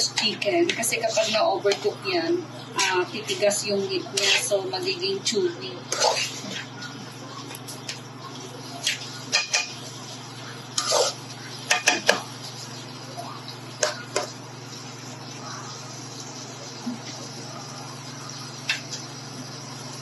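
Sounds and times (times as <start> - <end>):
spatula scraping a wok: 0.0 - 2.0, 2.8 - 4.7, 5.9 - 6.8, 10.8 - 12.2
steady low hum: 0.0 - 20.0.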